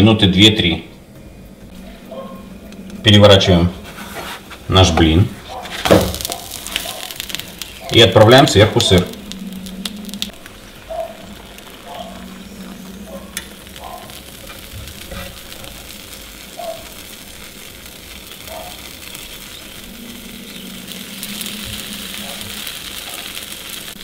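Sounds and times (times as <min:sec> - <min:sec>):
batter sizzling in a frying pan: 0:05.6 - 0:24.0
cheese sprinkled by hand: 0:06.1 - 0:07.9.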